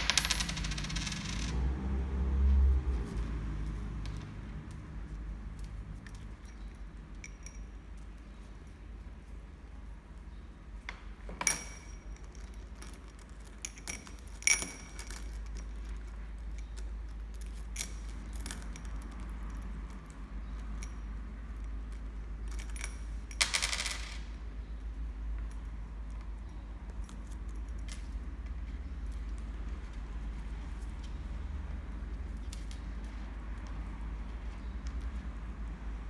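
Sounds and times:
coins clinking in glass bowl: 0.0s - 1.5s, 22.9s - 24.2s.

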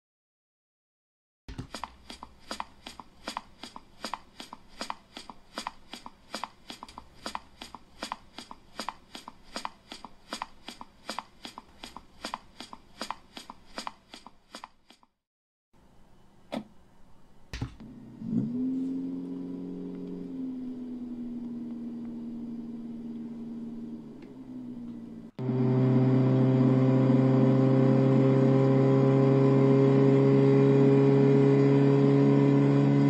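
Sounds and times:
click and thud: 1.5s - 2.0s, 17.6s - 17.9s
cartoon footsteps: 1.5s - 15.2s
car engine starting: 17.8s - 33.0s.

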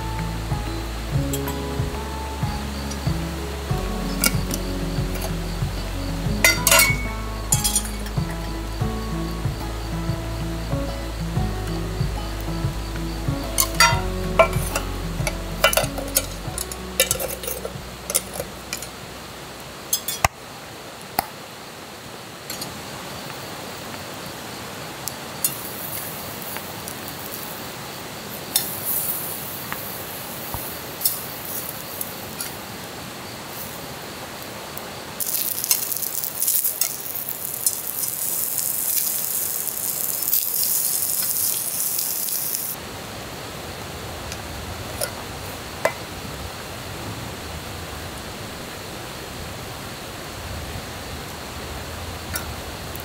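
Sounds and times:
background music: 0.0s - 19.4s
food sizzling in a pan: 0.0s - 20.4s, 22.5s - 32.9s, 33.5s - 34.4s, 35.1s - 42.8s
metal utensils clinking on cookware: 6.4s - 8.1s, 13.6s - 14.8s, 15.6s - 18.9s, 19.9s - 20.3s.

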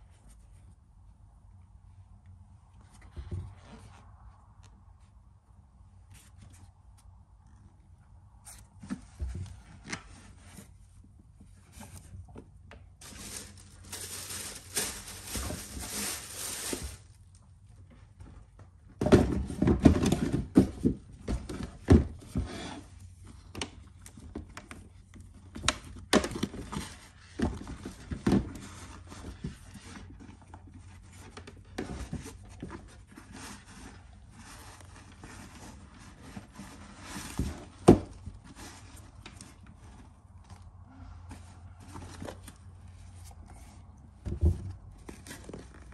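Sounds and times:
wrapping paper rustling: 13.0s - 17.3s.

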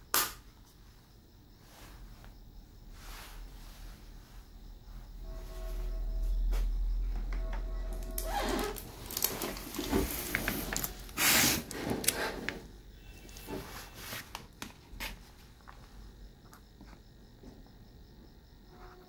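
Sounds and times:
low steady hum: 0.4s - 14.3s
rustling and scraping on workbench: 7.6s - 14.4s.

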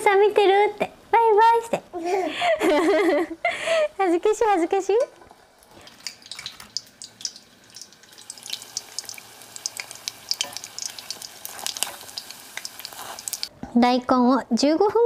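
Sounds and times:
food deep-frying in oil: 5.3s - 13.5s.

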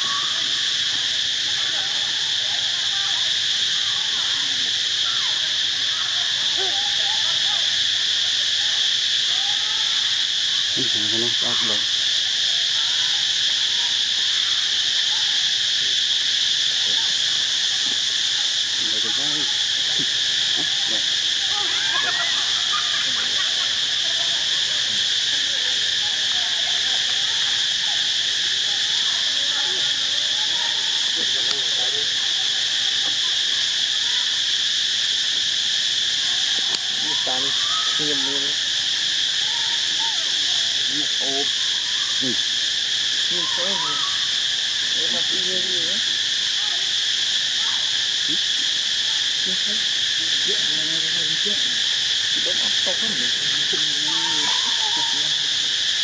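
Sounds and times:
insects buzzing: 0.0s - 56.0s
soft wavering calls: 36.0s - 46.7s, 47.6s - 56.0s.

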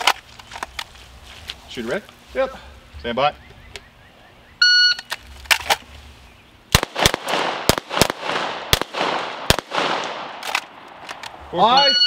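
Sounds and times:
pistol shots with echo: 6.7s - 10.9s.

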